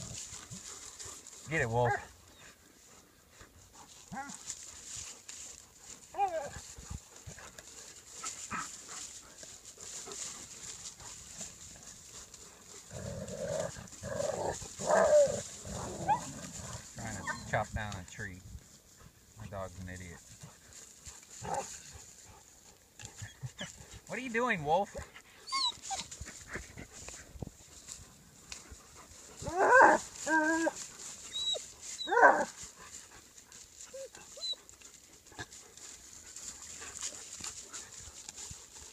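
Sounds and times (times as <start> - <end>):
dogs growling: 10.0 - 17.5
dog whine: 13.0 - 16.4, 29.4 - 32.5
dog whimpering: 25.5 - 26.1.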